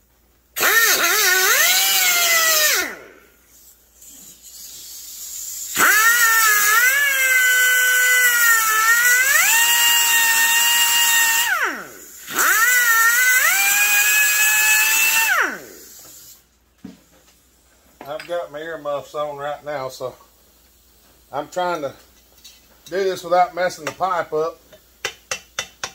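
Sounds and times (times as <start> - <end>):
cut-off tool cutting metal: 5.7 - 7.5.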